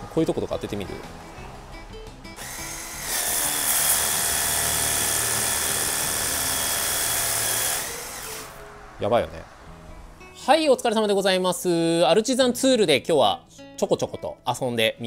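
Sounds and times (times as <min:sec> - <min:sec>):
background music: 0:00.0 - 0:15.0
pressure washer spraying: 0:02.4 - 0:08.6.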